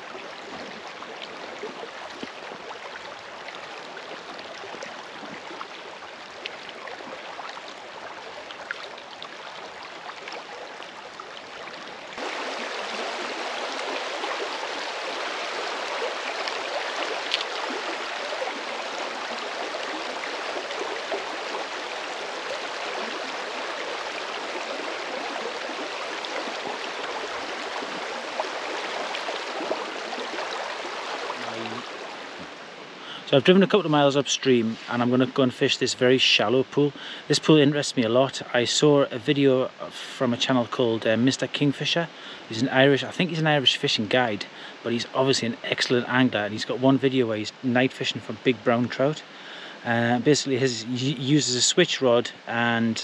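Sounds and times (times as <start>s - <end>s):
faint ticks and splashes: 0.0s - 32.7s
river water rushing: 0.0s - 33.3s.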